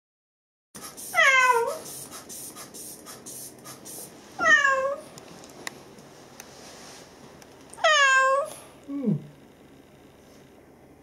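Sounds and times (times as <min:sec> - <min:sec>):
cat meowing: 0:01.2 - 0:01.8, 0:04.4 - 0:05.0, 0:07.8 - 0:08.5.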